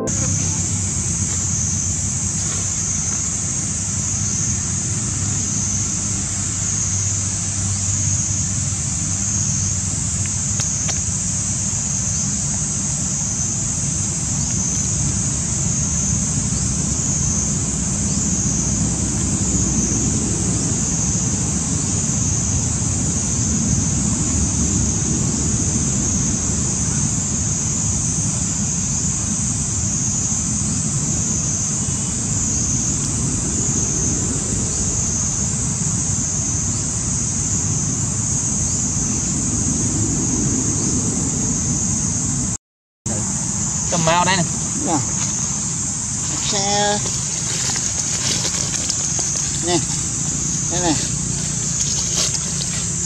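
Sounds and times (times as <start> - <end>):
high-pitched drone: 0.0 - 5.1.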